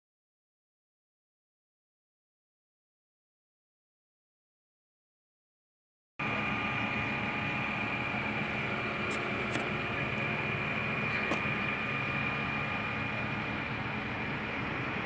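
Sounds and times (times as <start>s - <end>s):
machine hum with high whine: 6.2s - 15.0s.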